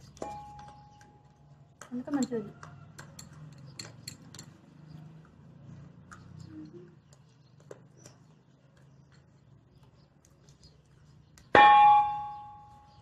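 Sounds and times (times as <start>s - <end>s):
loud metallic clang: 11.6s - 12.9s.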